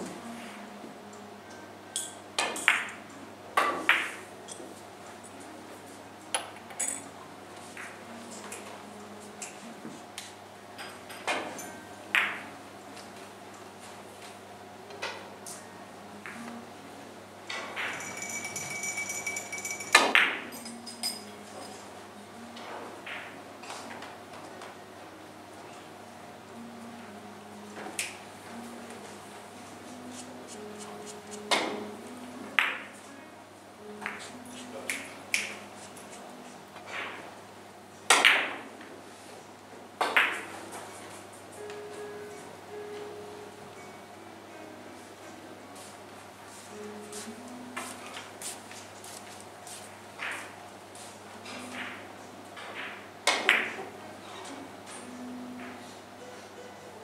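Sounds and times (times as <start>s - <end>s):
billiard balls clicking: 17.5s - 20.8s.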